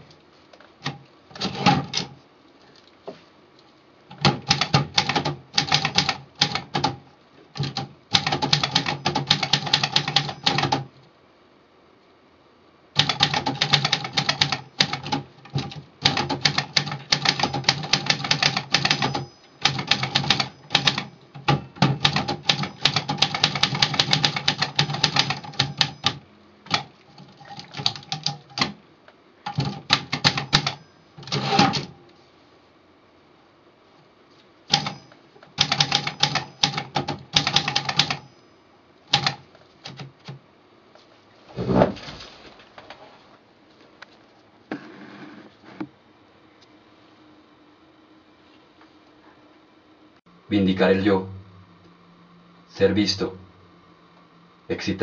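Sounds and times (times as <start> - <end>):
typewriter keys striking: 4.1 - 7.0, 7.6 - 10.9, 13.0 - 28.8, 29.5 - 31.9, 34.7 - 38.3, 39.1 - 40.4.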